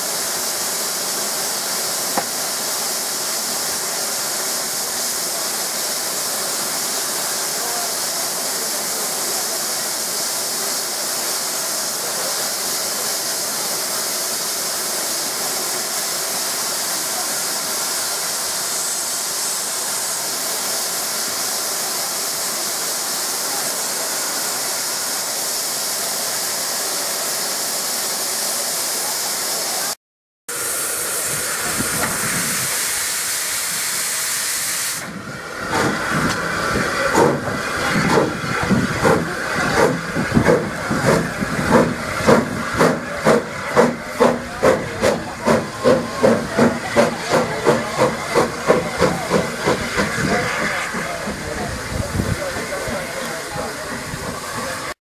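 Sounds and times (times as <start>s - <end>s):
steam locomotive knocks and chuffs: 0.0s - 7.4s, 31.1s - 54.9s
steam hissing: 0.0s - 55.0s.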